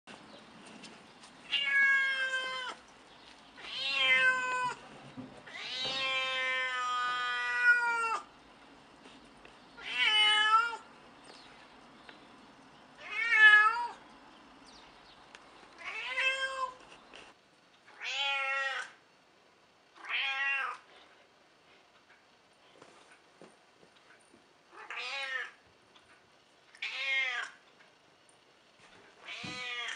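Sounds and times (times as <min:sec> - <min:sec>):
cat meowing loudly: 0:01.5 - 0:02.8, 0:03.6 - 0:04.8, 0:05.4 - 0:08.3, 0:09.8 - 0:10.8, 0:13.0 - 0:14.0, 0:15.8 - 0:16.8, 0:17.9 - 0:19.0, 0:20.0 - 0:20.8, 0:24.8 - 0:25.6, 0:26.8 - 0:27.6, 0:29.2 - 0:29.9.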